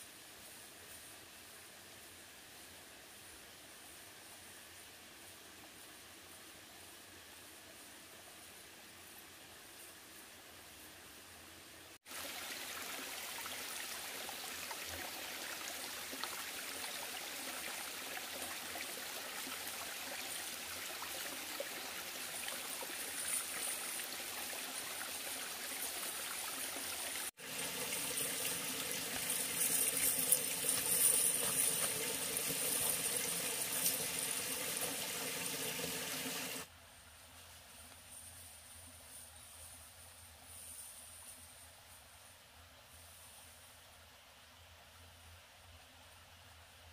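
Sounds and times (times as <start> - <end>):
stream running over rocks: 12.0 - 36.7.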